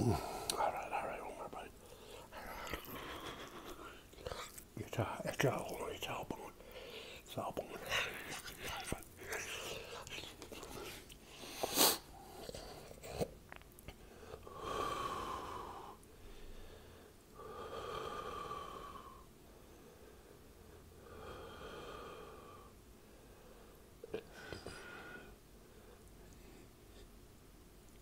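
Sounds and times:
man chewing: 1.8s - 4.7s, 8.1s - 14.0s
nasal snort: 10.9s - 13.3s.

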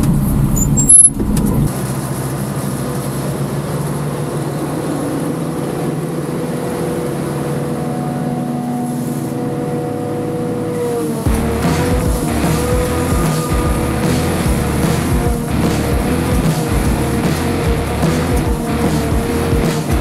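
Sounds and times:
farm machinery engine drone: 0.0s - 20.0s.

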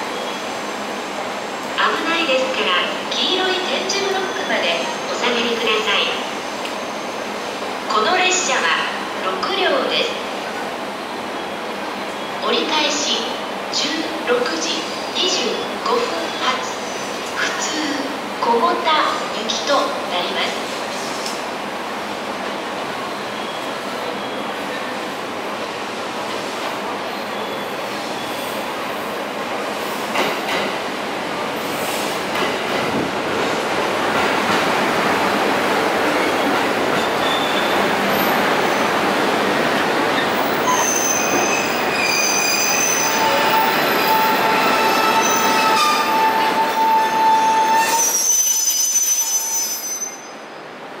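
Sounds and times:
train brakes squealing: 23.3s - 25.0s, 27.2s - 28.7s, 36.2s - 38.9s, 40.2s - 50.7s.

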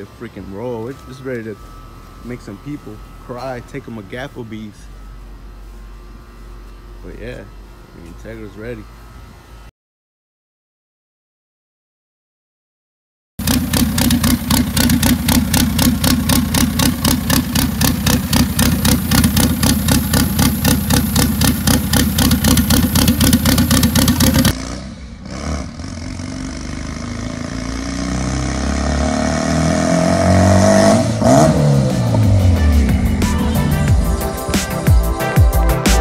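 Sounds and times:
turbocharged car engine revving: 13.4s - 36.0s.

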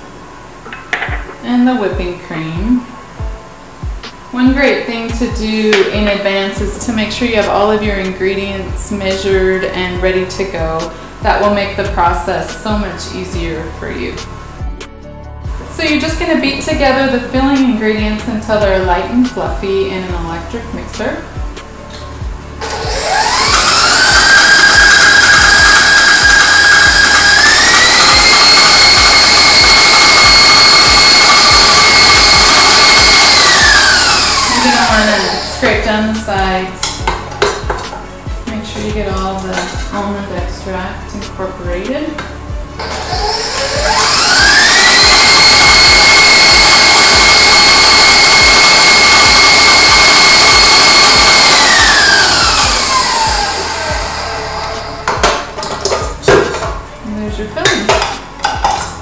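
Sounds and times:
stand mixer motor whine: 22.6s - 35.8s, 42.8s - 56.0s.

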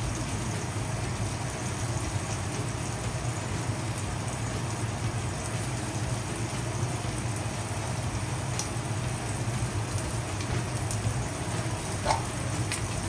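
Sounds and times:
meat sizzling in frying pan: 0.0s - 13.0s
oil popping: 8.5s - 13.0s.

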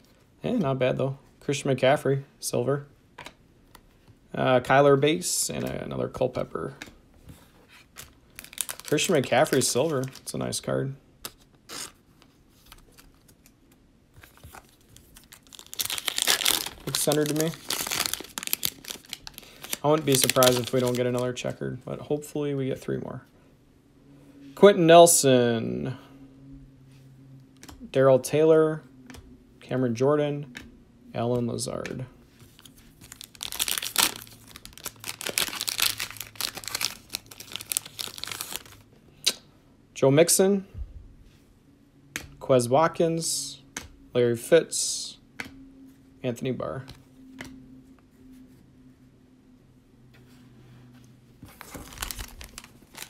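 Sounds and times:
foil wrapper crinkling and tearing: 8.3s - 10.3s, 14.5s - 21.2s, 33.0s - 38.8s, 51.6s - 53.0s
faint clicks of cards handled: 45.3s - 45.6s, 46.9s - 47.6s.

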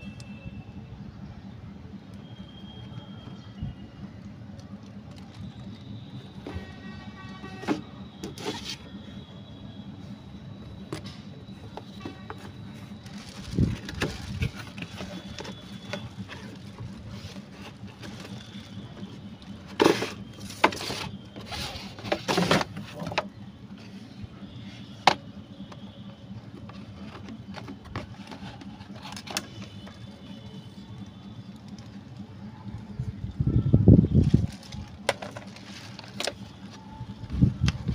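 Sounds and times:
steady low hum: 0.0s - 37.9s
cardboard box scrapes and rustles: 7.6s - 8.9s, 19.8s - 23.0s.

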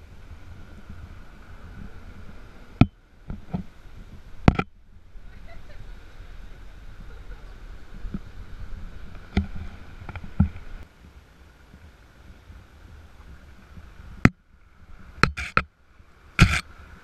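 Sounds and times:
off-road vehicle rumbling: 0.0s - 17.0s
sharp knocks: 15.2s - 15.7s.

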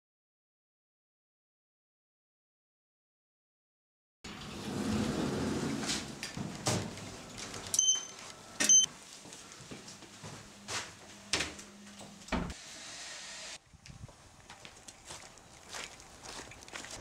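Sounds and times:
footsteps: 5.4s - 12.5s, 13.8s - 17.0s
short electronic beeps: 7.8s - 8.9s.

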